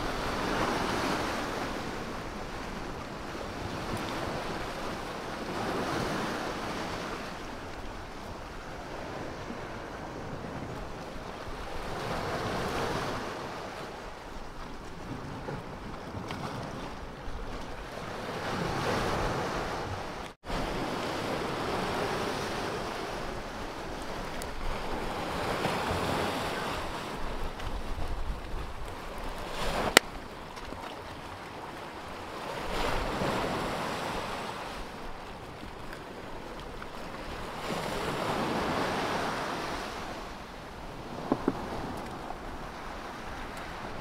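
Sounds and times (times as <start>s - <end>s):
sea waves washing on shore: 0.0s - 44.0s
wind on microphone: 0.0s - 44.0s.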